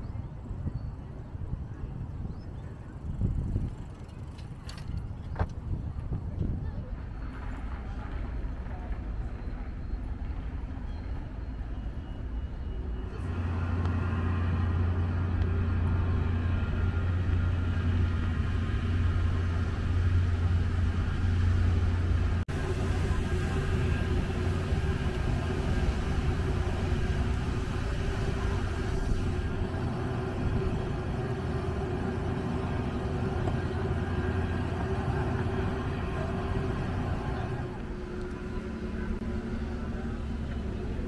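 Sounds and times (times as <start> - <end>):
street noise: 0.0 - 41.0
large engine humming: 6.5 - 41.0.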